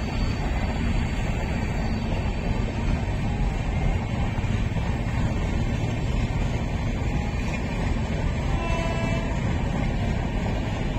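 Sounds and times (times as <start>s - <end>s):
moving vehicle running noise: 0.0s - 10.9s.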